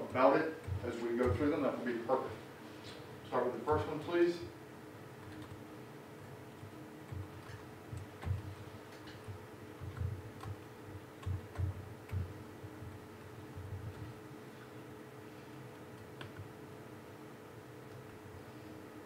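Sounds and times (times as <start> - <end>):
low electrical hum: 0.0 - 19.0
computer mouse clicks: 7.1 - 10.6, 15.7 - 16.5.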